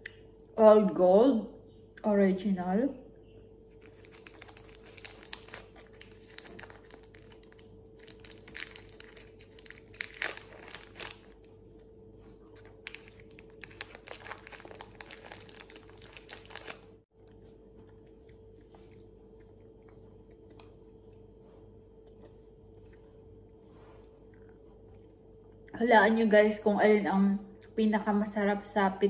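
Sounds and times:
faint steady hum: 0.0 - 29.0
wrapper crinkling: 3.7 - 11.5, 12.2 - 17.0.

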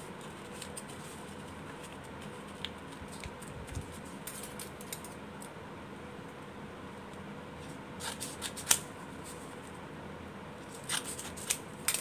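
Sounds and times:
faint steady hum: 0.0 - 12.0
paper being folded and creased: 0.2 - 4.4.

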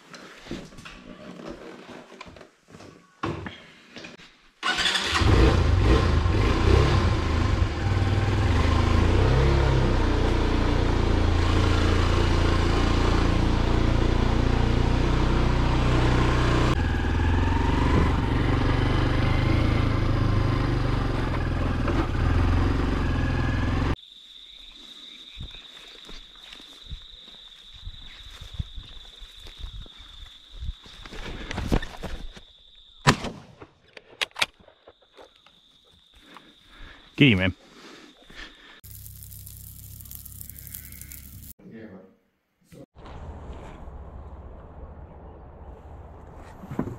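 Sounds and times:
motorcycle engine running: 5.3 - 24.0.

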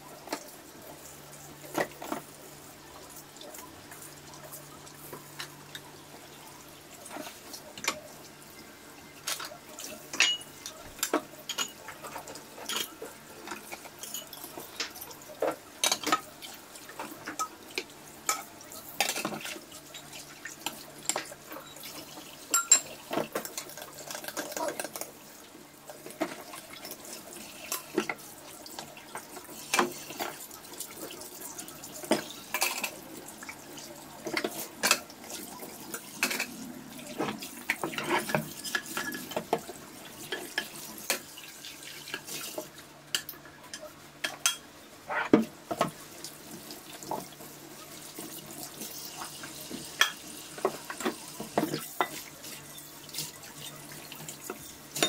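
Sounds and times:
pots and pans clattering in sink: 9.2 - 16.3, 16.9 - 25.2, 25.9 - 30.5, 31.2 - 33.1, 34.2 - 46.0, 48.1 - 55.0.

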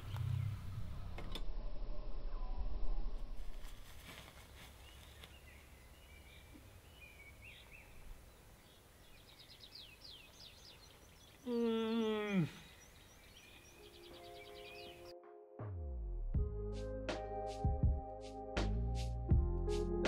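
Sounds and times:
small birds chirping: 4.4 - 15.1.

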